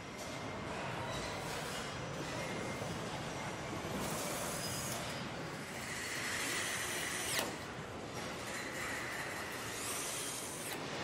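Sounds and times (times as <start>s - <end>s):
factory hall noise: 0.0s - 11.0s.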